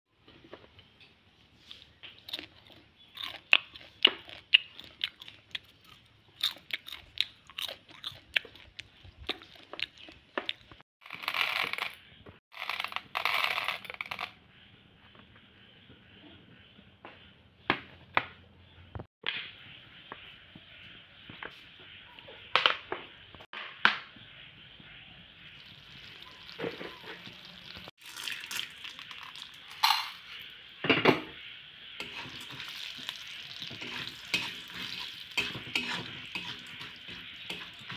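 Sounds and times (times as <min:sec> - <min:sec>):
popcorn crunching: 0:02.0 - 0:13.5, 0:32.0 - 0:37.9
kernels poured into steel bowl: 0:11.0 - 0:12.0, 0:28.0 - 0:30.2.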